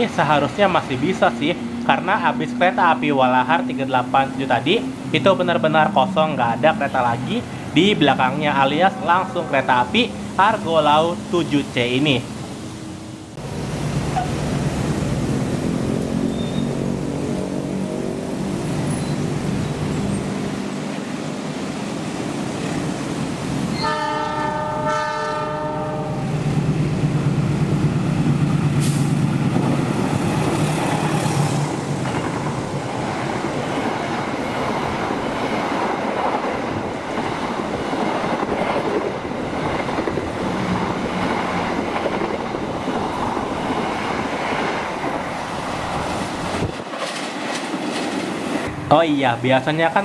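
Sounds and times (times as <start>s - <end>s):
locomotive engine drone: 0.0s - 24.9s
train carriages rumbling past: 0.0s - 50.0s
train horn: 23.8s - 26.3s.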